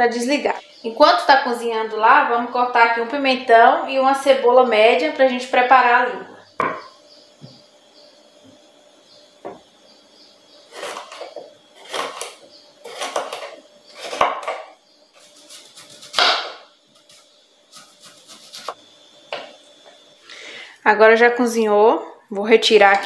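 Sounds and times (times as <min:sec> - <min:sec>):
knife cutting pepper: 0:10.7 - 0:14.5, 0:15.2 - 0:18.8.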